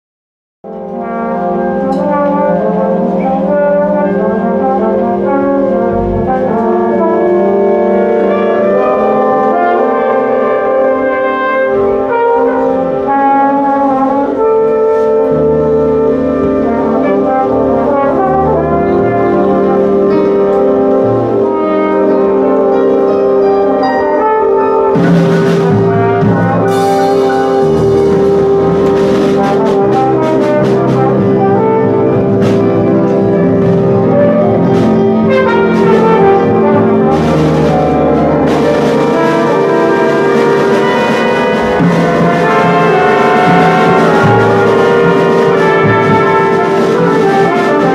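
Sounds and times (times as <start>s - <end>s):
saxophones and brass chords: 0.7s - 47.9s
low bass part: 5.0s - 7.1s, 25.0s - 47.6s.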